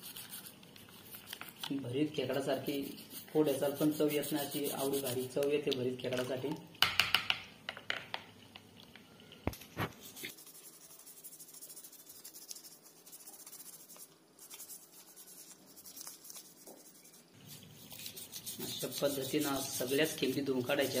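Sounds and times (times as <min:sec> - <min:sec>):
toothbrush scratching crab shell: 0:00.0 - 0:05.5, 0:09.8 - 0:21.0.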